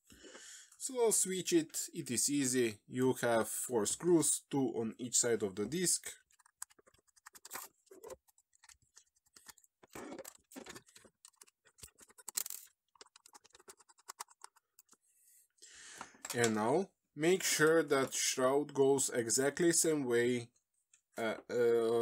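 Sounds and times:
screwdriver clicking and scratching: 0:06.2 - 0:15.0.

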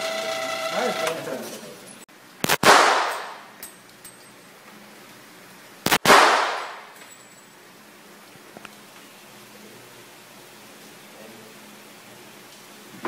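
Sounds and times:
gunshots echoing indoors: 0:02.5 - 0:03.5, 0:05.9 - 0:07.0.

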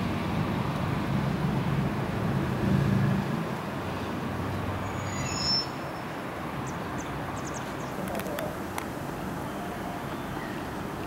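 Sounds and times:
high squeal: 0:04.8 - 0:06.1.

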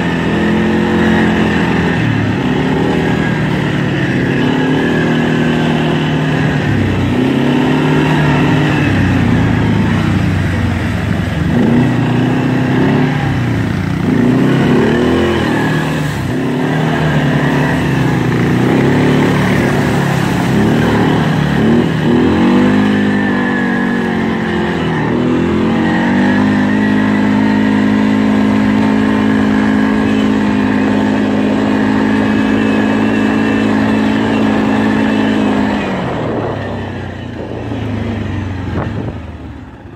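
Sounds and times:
atv engine running under load: 0:00.0 - 0:39.9.

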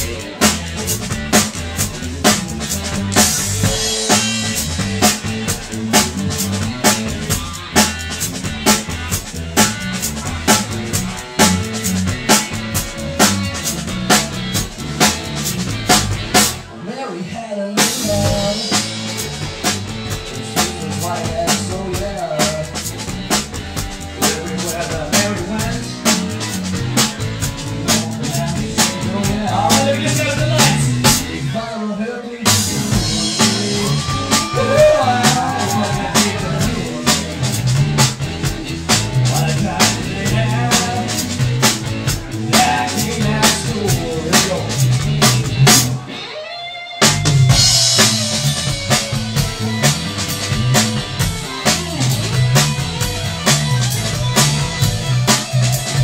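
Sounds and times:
driving drum kit: 0:00.0 - 0:16.8, 0:17.8 - 0:31.7, 0:32.4 - 0:56.0
electric guitar: 0:00.0 - 0:16.8, 0:17.8 - 0:56.0.

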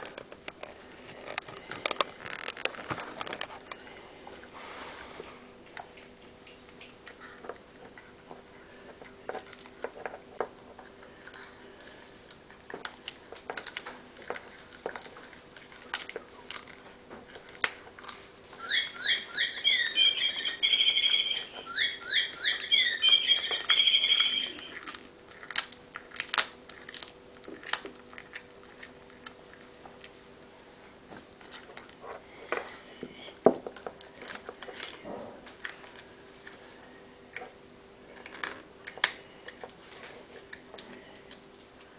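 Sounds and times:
cat crunching meat on bone: 0:00.0 - 0:04.5, 0:05.6 - 0:18.5, 0:24.6 - 0:32.9
high chirping call: 0:18.6 - 0:24.8.

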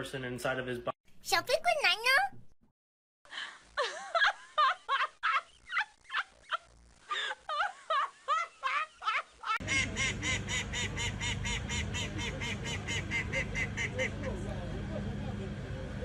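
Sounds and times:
duck quacking rapidly: 0:09.6 - 0:14.3
honking bird calls: 0:09.6 - 0:14.5.

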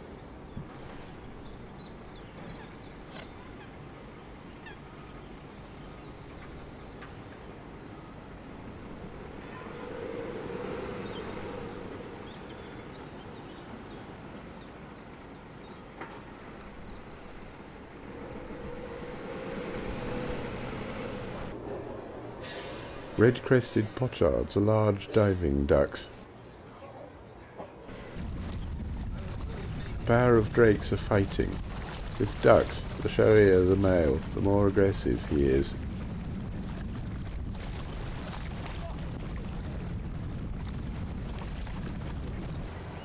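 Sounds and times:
small birds chirping: 0:08.6 - 0:19.3.

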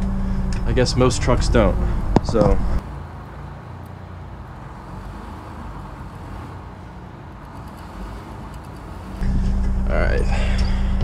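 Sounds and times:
diesel bus engine running: 0:00.0 - 0:11.0.

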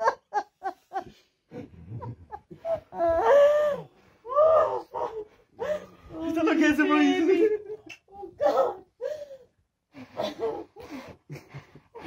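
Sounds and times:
woman sobbing and wailing: 0:02.0 - 0:06.3, 0:07.3 - 0:09.5.

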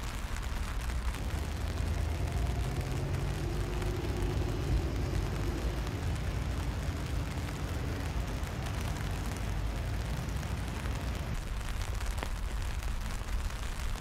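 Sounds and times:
low steady rumble: 0:00.0 - 0:14.0
boat engine drone: 0:01.0 - 0:08.5.

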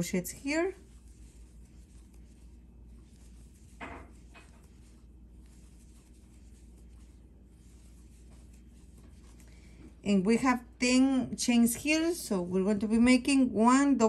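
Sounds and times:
yarn scratching on crochet hook: 0:00.0 - 0:09.5
low steady hum: 0:00.0 - 0:14.0.

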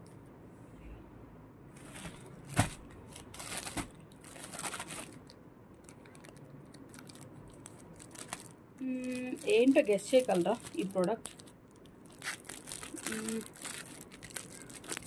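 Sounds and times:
plastic bag crinkling: 0:02.0 - 0:15.0
scissors cutting plastic: 0:09.2 - 0:11.5.

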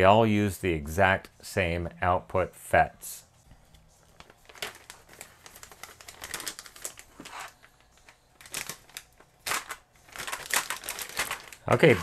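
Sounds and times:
plastic bag crinkling: 0:04.1 - 0:12.0.

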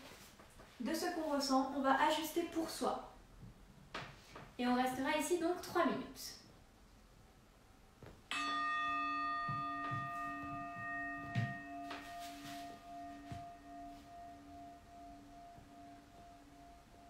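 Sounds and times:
singing bowl ringing: 0:08.3 - 0:17.0
soft thumps of movement: 0:09.3 - 0:14.3.

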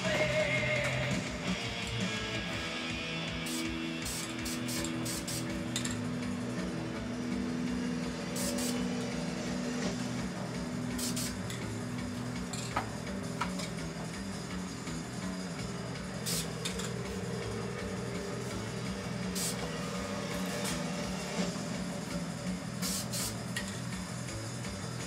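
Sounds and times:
guitar music with bass: 0:00.0 - 0:25.0
spray paint can hissing: 0:03.4 - 0:06.0, 0:08.3 - 0:08.9, 0:10.9 - 0:11.6, 0:16.2 - 0:17.4, 0:18.4 - 0:21.6, 0:22.7 - 0:23.7.

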